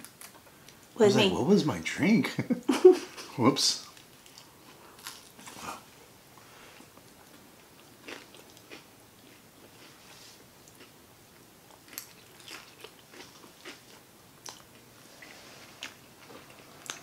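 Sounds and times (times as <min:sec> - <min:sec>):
chewing crunches: 0:03.9 - 0:05.8, 0:06.8 - 0:10.0, 0:11.6 - 0:17.0.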